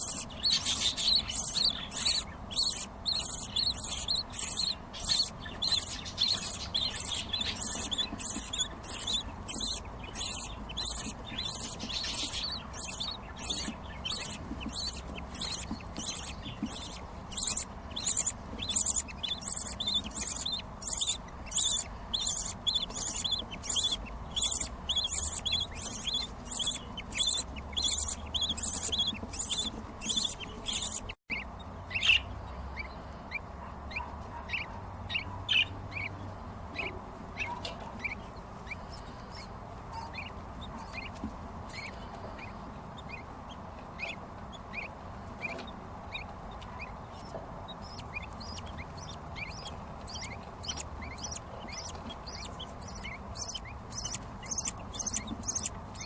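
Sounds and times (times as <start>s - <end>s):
bird chicks cheeping: 0.0s - 56.0s.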